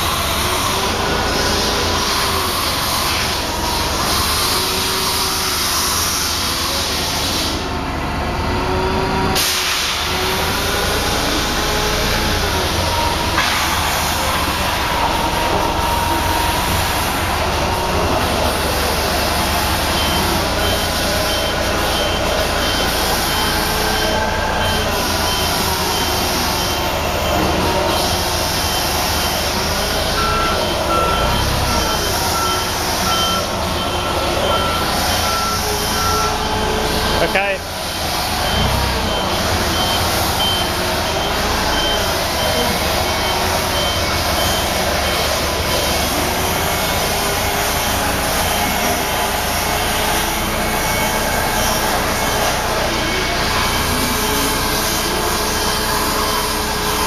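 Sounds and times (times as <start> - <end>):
forklift engine and hydraulics: 0.0 - 57.0
warning beeper: 11.2 - 37.8, 38.4 - 57.0.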